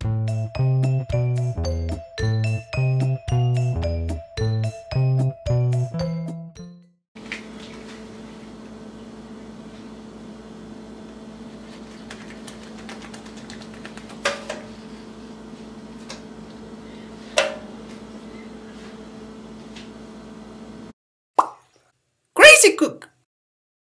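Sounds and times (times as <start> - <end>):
low electrical hum: 7.2 - 20.9.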